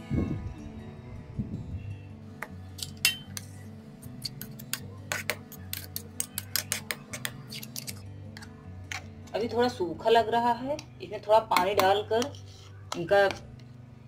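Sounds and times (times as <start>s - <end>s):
background music: 0.0s - 14.0s
spoon scraping steel jar: 2.8s - 8.6s, 11.7s - 13.4s.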